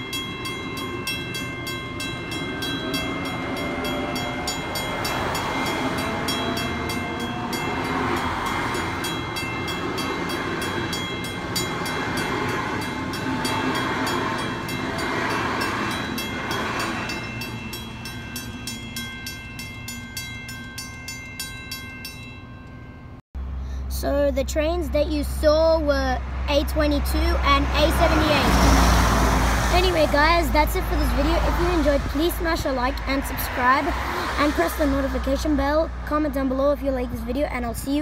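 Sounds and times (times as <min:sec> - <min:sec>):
train wheels rumbling on rails: 0:00.0 - 0:22.3, 0:25.5 - 0:38.0
level crossing bells ringing: 0:00.0 - 0:23.2.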